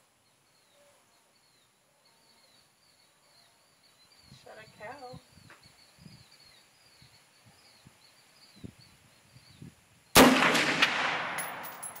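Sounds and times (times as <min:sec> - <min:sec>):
rifle shot with echo: 0:10.1 - 0:12.0.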